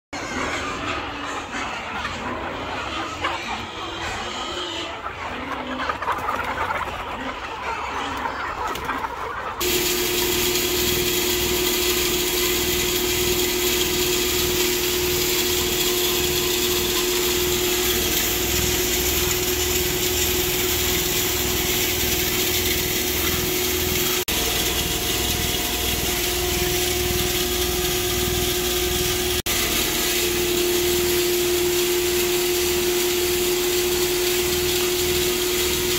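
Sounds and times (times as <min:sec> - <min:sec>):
chickens clucking: 0:00.2 - 0:35.9
electric feed mill humming: 0:09.6 - 0:35.9.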